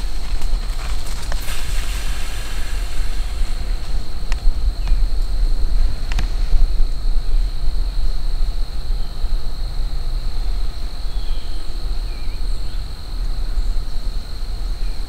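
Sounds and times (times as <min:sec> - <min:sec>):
wind on microphone: 0:00.0 - 0:15.0
high-pitched whine: 0:01.4 - 0:09.2.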